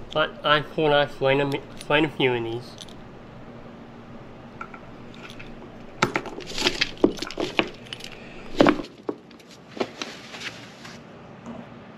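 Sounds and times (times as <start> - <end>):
metal fittings clinking: 0.0 - 8.9.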